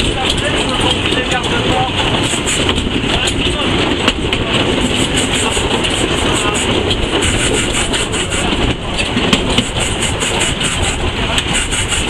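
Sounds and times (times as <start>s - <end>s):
steam locomotive mechanical din: 0.0s - 12.0s.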